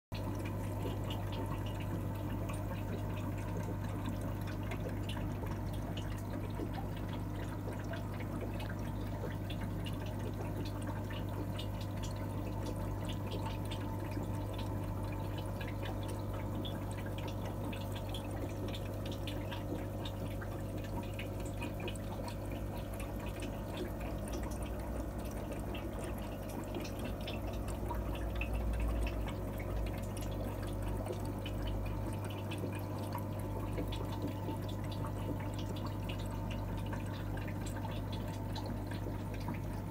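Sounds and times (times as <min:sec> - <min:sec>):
steady low hum: 0:00.1 - 0:39.9
water dripping and trickling: 0:00.2 - 0:39.9.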